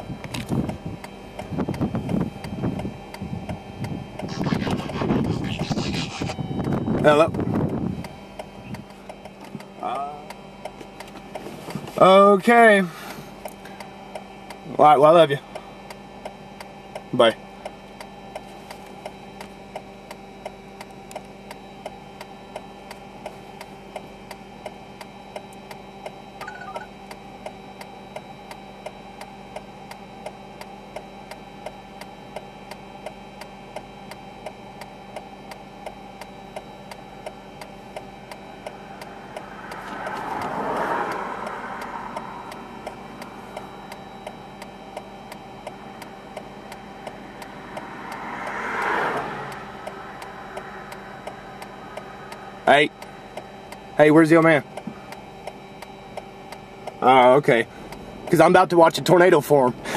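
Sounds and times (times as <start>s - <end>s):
low hum: 0.0s - 11.8s, 35.9s - 58.4s
flasher relay ticking: 13.4s - 59.9s
vehicle passing: 39.2s - 42.8s, 47.4s - 51.2s.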